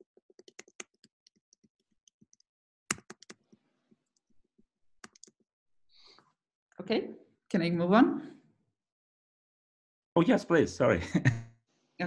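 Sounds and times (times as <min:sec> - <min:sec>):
computer keys clicking: 0:00.0 - 0:03.5, 0:05.0 - 0:05.4.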